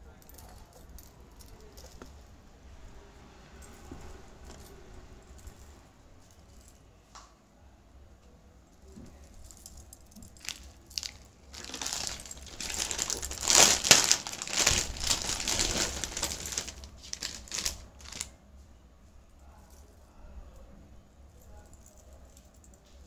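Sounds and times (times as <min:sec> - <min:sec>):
plastic bag crinkling: 0:10.1 - 0:18.3.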